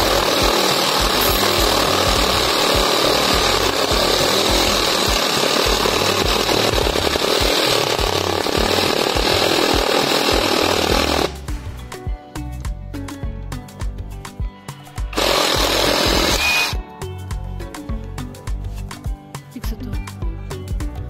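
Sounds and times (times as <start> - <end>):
reciprocating saw cutting wood: 0.0 - 11.5, 15.0 - 16.8.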